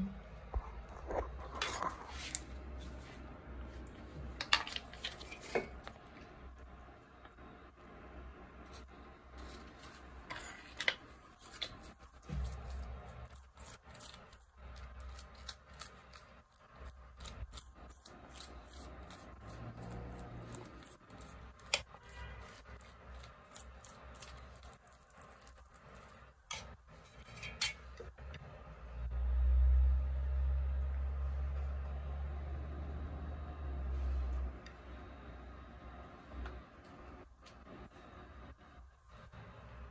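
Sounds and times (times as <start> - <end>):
utensil scraping flatbread: 8.6 - 28.1.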